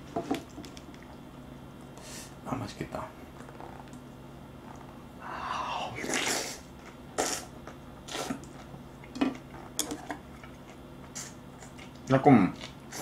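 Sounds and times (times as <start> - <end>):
person slurping noodles: 5.5 - 7.5, 8.1 - 8.4.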